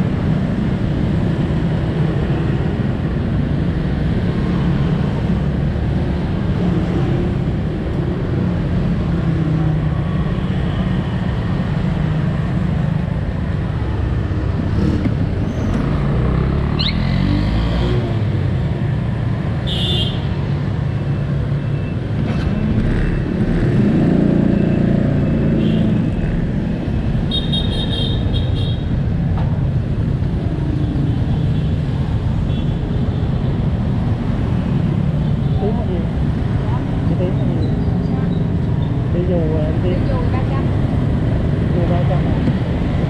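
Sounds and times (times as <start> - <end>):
traffic rumble: 0.0 - 43.0
motorbikes passing: 11.0 - 43.0.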